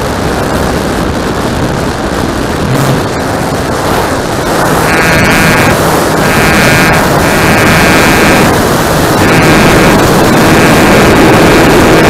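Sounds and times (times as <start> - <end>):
high motor whine: 0.0 - 12.0
wind on microphone: 0.0 - 12.0
model airplane motor: 2.8 - 12.0.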